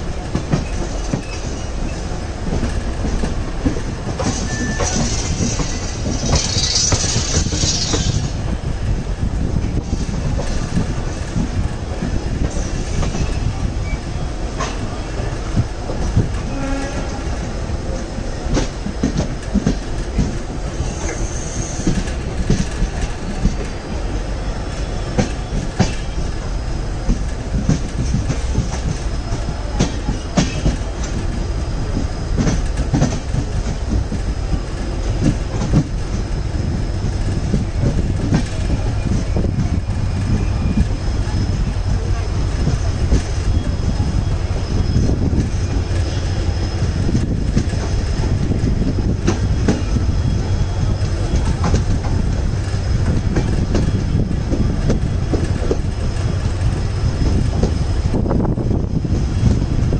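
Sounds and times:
train wheels rumbling over rail joints: 0.0s - 59.9s
wheels clacking on rail joints: 0.0s - 59.9s
high wheel squeal: 4.2s - 8.4s, 20.8s - 22.0s, 38.5s - 47.1s.

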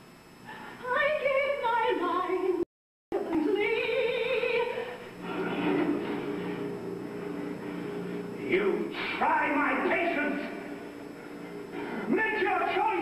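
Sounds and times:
woman singing soprano: 0.8s - 2.6s, 3.2s - 5.0s
lower voices singing: 3.3s - 8.2s.

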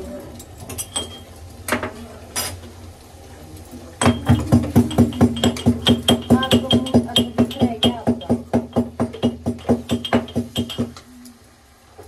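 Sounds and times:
metal kitchen utensils clinking: 0.6s - 2.6s, 4.0s - 8.5s, 9.1s - 11.0s.

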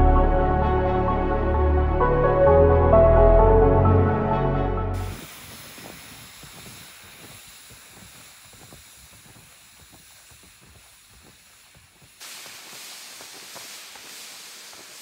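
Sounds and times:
bright hiss: 5.0s - 15.0s
sled dragging with hiss: 5.0s - 15.0s.

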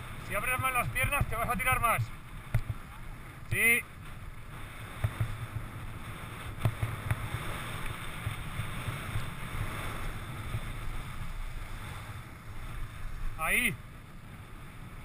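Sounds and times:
wind rumbling on microphone: 0.0s - 15.0s
skis scraping on snow: 4.1s - 13.6s.

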